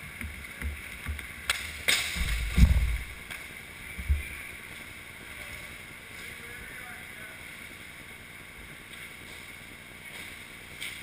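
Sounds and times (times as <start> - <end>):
low thumps and rumble: 2.2 - 3.3, 4.0 - 4.5.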